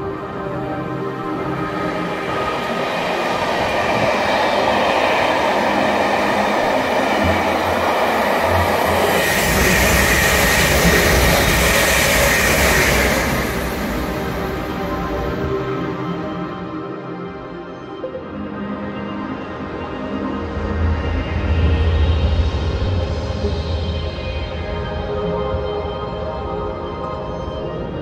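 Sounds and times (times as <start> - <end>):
electric train passing close: 0.0 - 17.3
distant train rumbling past: 0.4 - 15.5.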